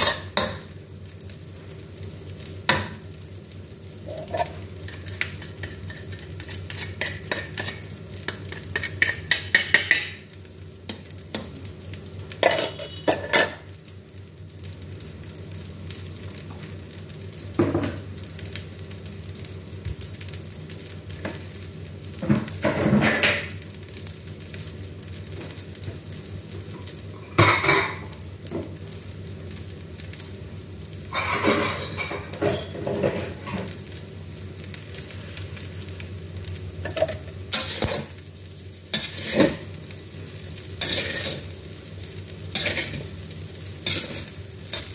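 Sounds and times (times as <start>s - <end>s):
pans and utensils clanking: 0.0s - 0.7s, 4.0s - 10.3s, 12.4s - 13.7s, 22.2s - 23.6s, 27.2s - 28.2s, 31.1s - 33.8s, 36.8s - 38.2s, 39.0s - 39.7s, 40.8s - 41.5s, 42.5s - 43.1s, 43.8s - 44.9s.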